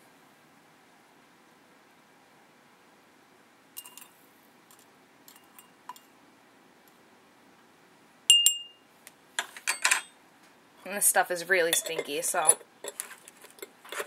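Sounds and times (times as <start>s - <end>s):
metal clicking against glass jar: 3.8s - 4.1s, 11.7s - 14.0s
sharp glassy clink: 8.3s - 8.8s.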